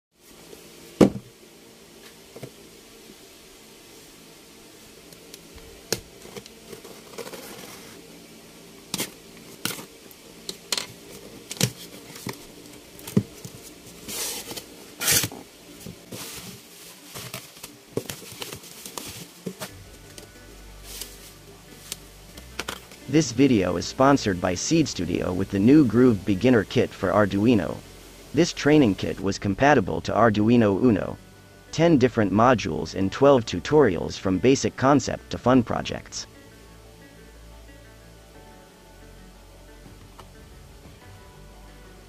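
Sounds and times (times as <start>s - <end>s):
taps and knocks on box: 1.0s - 1.3s
bubble wrap crinkling: 16.0s - 23.0s.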